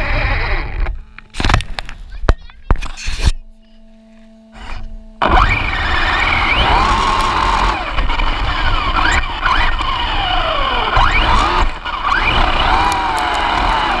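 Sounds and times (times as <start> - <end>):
rc car motor whine: 0.0 - 2.1, 2.7 - 14.0
tyres rumbling on gravel: 5.2 - 14.0.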